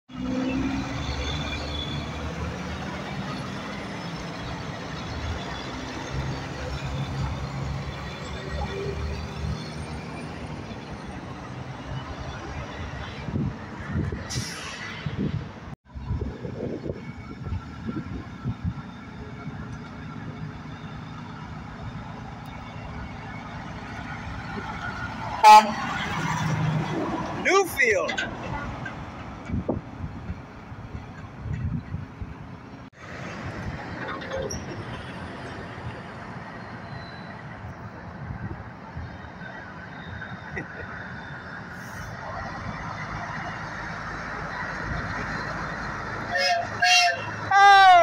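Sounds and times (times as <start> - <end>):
truck diesel engine droning: 0.1 - 14.6, 15.5 - 48.0
tyre and road noise: 0.1 - 48.0
truck air horn toot: 25.4 - 26.1, 46.3 - 48.0.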